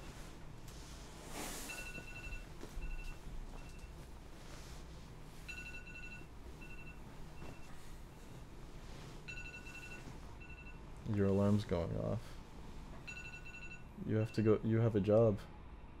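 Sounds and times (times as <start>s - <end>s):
electronic alarm beeping: 1.6s - 4.0s, 5.5s - 8.3s, 9.3s - 10.8s, 13.0s - 14.4s.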